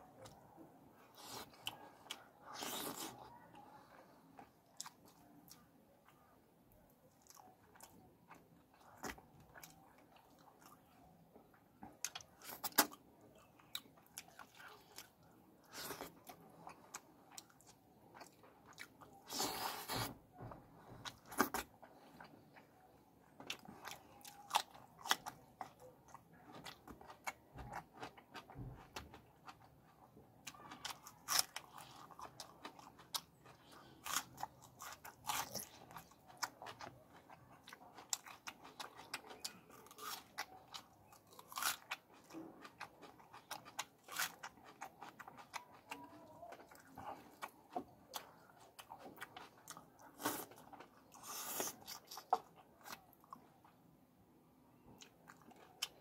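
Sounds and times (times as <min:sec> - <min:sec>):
person chewing and biting: 0:01.1 - 0:03.3, 0:23.4 - 0:53.5.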